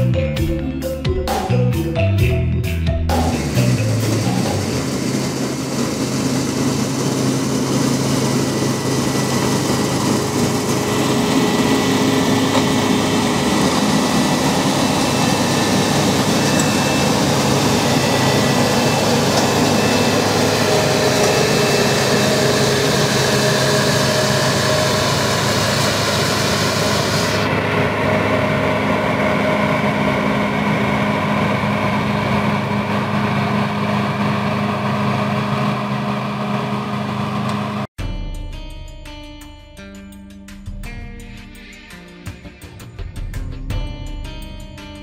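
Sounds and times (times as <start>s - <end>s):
combine harvester diesel engine hum: 3.1s - 37.9s
threshing machinery whirring: 3.3s - 37.8s.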